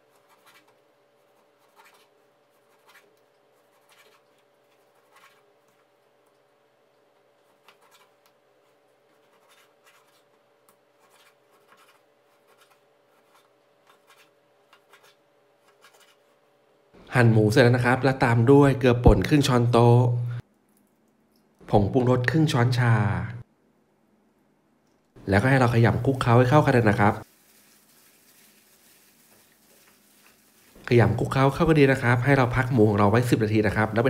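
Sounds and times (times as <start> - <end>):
knife scraping: 0.0 - 5.8, 7.5 - 8.2, 9.1 - 10.4, 11.0 - 16.3.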